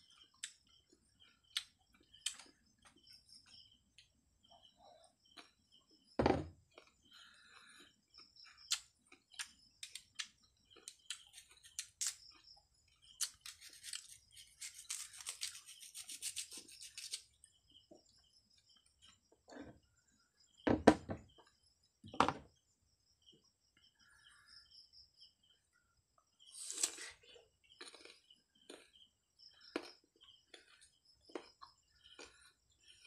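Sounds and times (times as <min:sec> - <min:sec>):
crunching mango: 0:08.5 - 0:17.3, 0:26.5 - 0:32.6.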